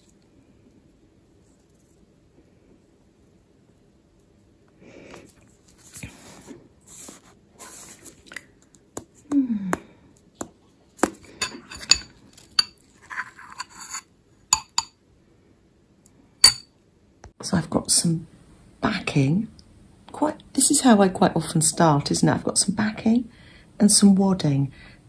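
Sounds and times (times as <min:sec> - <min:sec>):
spoon clinking on ceramic bowl: 0:13.5 - 0:15.0, 0:16.4 - 0:16.7.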